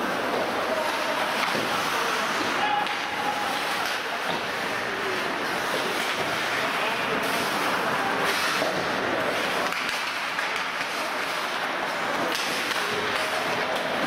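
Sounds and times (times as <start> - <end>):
skates hissing on ice: 0.8 - 2.6, 3.6 - 11.7
sticks and puck knocking: 9.6 - 11.2.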